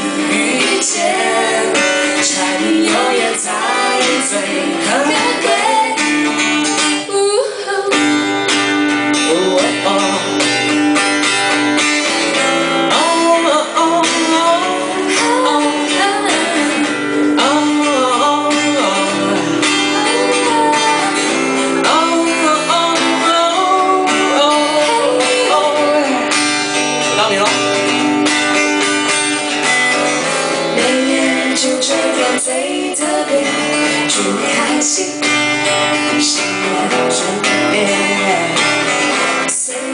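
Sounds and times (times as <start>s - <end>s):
woman singing into a microphone: 0.0s - 8.6s, 12.9s - 26.5s, 30.5s - 39.9s
guitar accompaniment: 0.0s - 39.9s.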